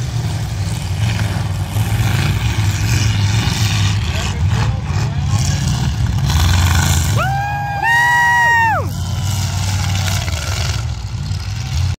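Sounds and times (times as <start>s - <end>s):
race car engines rumbling: 0.0s - 12.0s.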